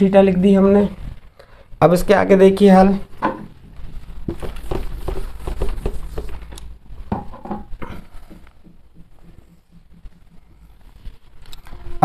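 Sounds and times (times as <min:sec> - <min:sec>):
taps and scuffs on whiteboard: 0:04.2 - 0:06.5, 0:07.1 - 0:11.2.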